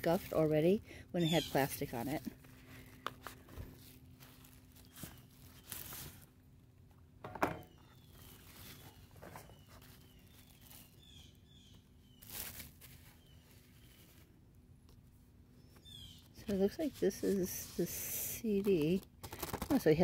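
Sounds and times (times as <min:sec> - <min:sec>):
packaging rustling and crinkling: 0:01.7 - 0:06.3, 0:07.9 - 0:14.3, 0:18.6 - 0:19.9.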